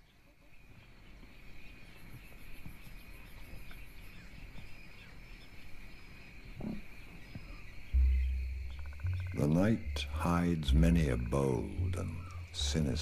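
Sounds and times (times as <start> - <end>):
insects chirring: 0.0 - 13.0
faint low rumble: 7.4 - 13.0.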